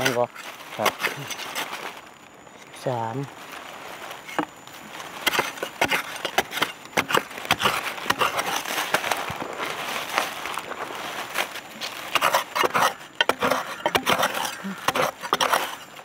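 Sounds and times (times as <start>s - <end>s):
loose earth crackling and trickling: 0.0s - 16.0s
metal blade chopping into soil: 5.2s - 9.1s, 12.1s - 15.8s.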